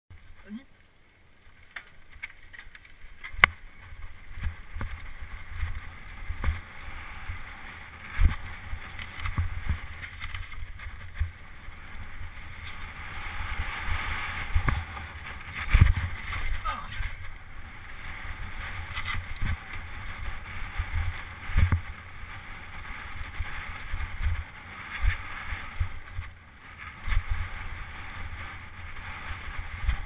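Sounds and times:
bike tyres rolling on dirt: 0:00.1 - 0:30.0
bike knocking and rattling: 0:01.5 - 0:06.8
wind rumble on microphone: 0:02.0 - 0:30.0.

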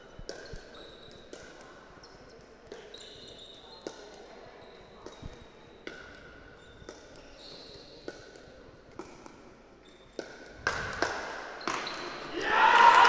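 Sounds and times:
shoes squeaking on floor: 0:00.0 - 0:08.7, 0:09.4 - 0:10.6, 0:11.6 - 0:12.2.

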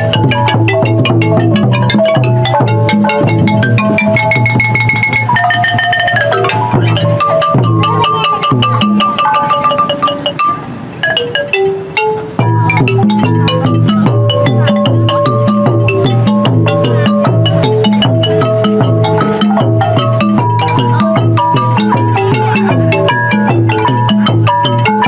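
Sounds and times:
low bass: 0:00.0 - 0:09.2, 0:12.4 - 0:25.0
mallet percussion runs: 0:00.0 - 0:25.0.

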